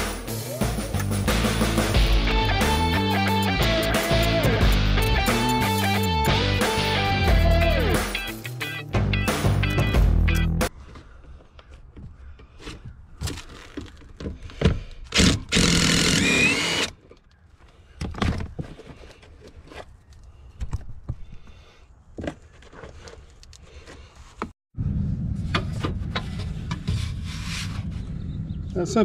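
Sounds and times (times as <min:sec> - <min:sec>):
power tool running: 0:15.2 - 0:16.9.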